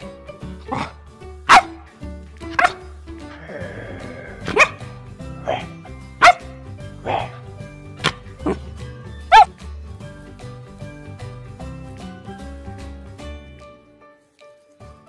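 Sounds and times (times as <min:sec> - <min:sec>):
background music: 0:00.0 - 0:15.0
puppy barking: 0:00.7 - 0:01.9, 0:02.5 - 0:02.9, 0:04.4 - 0:08.7, 0:09.3 - 0:09.5.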